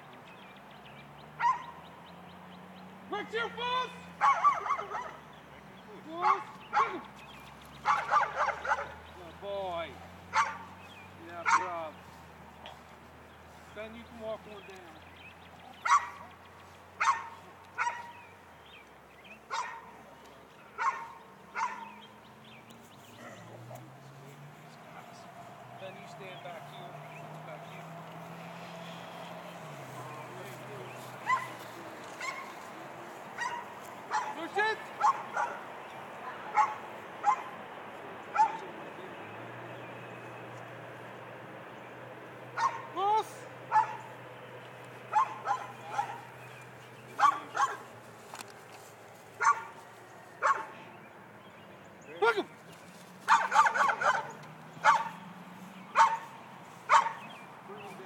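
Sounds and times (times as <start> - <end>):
dog barking: 1.4 - 1.8, 4.2 - 5.2, 6.2 - 7.0, 7.8 - 9.0, 10.0 - 10.8, 11.4 - 11.8, 15.8 - 16.4, 17.0 - 18.2, 19.5 - 20.0, 20.8 - 22.0, 23.1 - 23.8, 31.2 - 31.6, 32.2 - 32.6, 33.4 - 34.4, 35.0 - 35.7, 36.4 - 37.6, 38.3 - 38.6, 42.6 - 43.0, 43.7 - 44.1, 45.1 - 46.4, 47.2 - 47.9, 49.4 - 49.8, 50.4 - 50.8, 53.3 - 55.2, 55.9 - 57.3.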